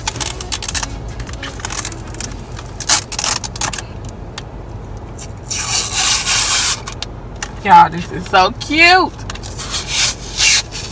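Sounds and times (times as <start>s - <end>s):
plastic clicks and crackles: 0.0s - 4.5s.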